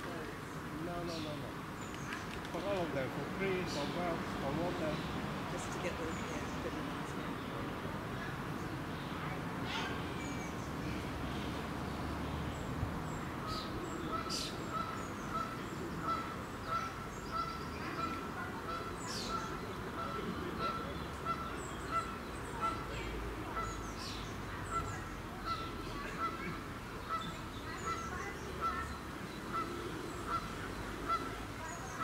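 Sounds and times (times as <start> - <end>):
small birds chirping: 0.0 - 32.0.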